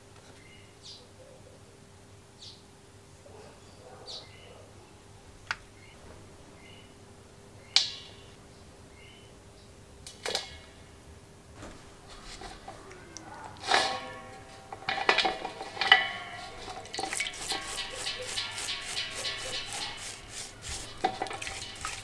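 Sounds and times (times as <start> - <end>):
metal clanking against steel bowl: 13.6 - 22.0
metal parts ticking in a bowl: 15.9 - 22.0
small liquid splashes: 16.6 - 22.0.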